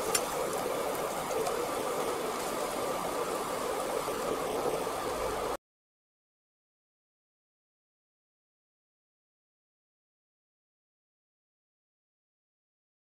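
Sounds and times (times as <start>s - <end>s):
food deep-frying in oil: 0.0s - 5.6s.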